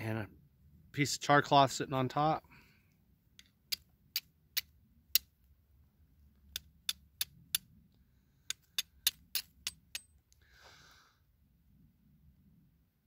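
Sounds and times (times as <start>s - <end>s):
steel striking stone clicks: 3.4s - 5.3s, 6.4s - 7.7s, 8.5s - 10.4s.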